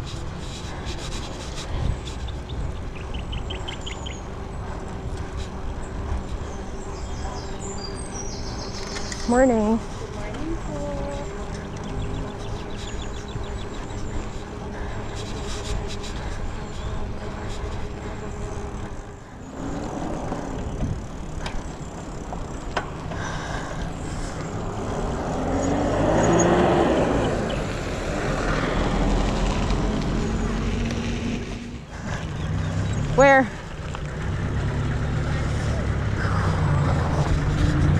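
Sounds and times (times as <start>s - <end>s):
bicycle road noise: 0.0s - 37.9s
wind noise: 19.5s - 21.7s.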